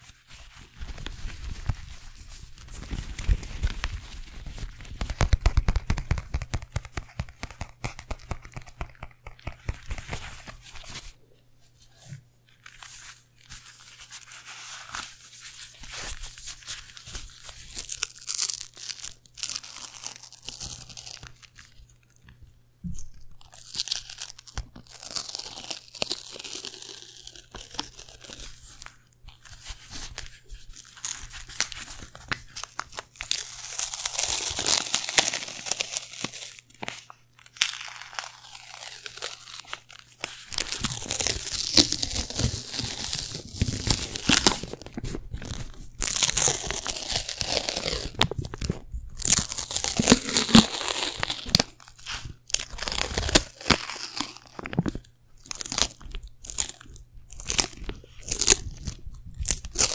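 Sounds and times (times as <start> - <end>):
paper crinkling and tearing: 0.0 - 11.2, 11.9 - 22.2, 23.0 - 59.9.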